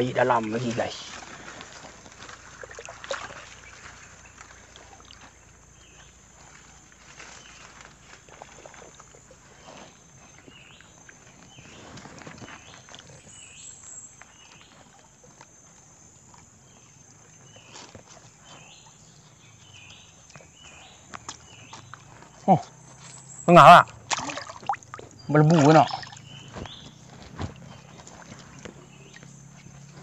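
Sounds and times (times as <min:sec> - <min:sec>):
person wading through water: 0:00.6 - 0:13.4, 0:23.6 - 0:30.0.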